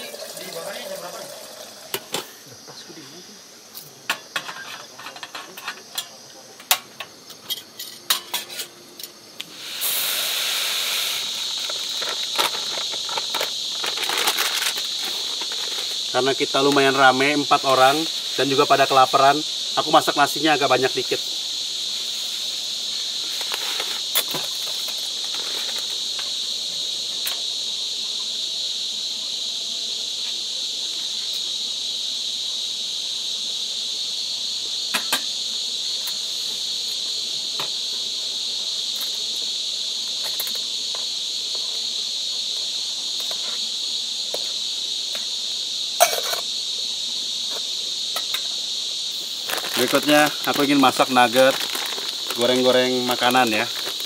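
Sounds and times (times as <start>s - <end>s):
crickets chirping: 0.0s - 54.0s
pot and lid clinking: 46.0s - 46.5s.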